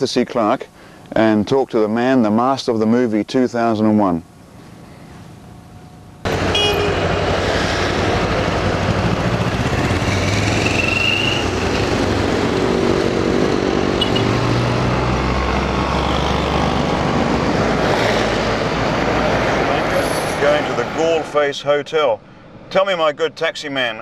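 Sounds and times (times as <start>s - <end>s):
road and wind noise: 0.0s - 24.0s
vehicle engine running: 4.2s - 17.7s.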